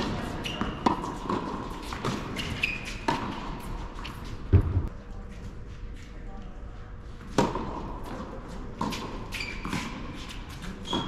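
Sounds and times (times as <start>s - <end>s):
sneaker squeaks: 0.0s - 4.5s, 8.8s - 11.0s.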